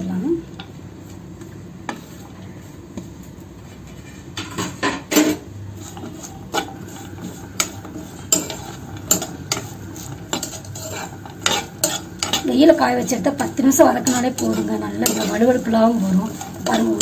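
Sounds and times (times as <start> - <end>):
okra sauteing in oil: 0.0 - 17.0
metal spatula scraping a pan: 3.8 - 17.0.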